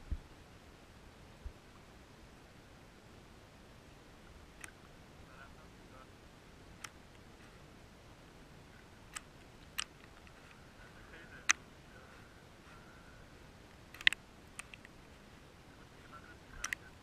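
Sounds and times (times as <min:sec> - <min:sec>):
faint steady hiss: 0:00.0 - 0:17.0
sharp clicks: 0:04.6 - 0:04.9, 0:06.8 - 0:07.6, 0:08.8 - 0:10.6, 0:13.7 - 0:15.0, 0:16.5 - 0:16.9.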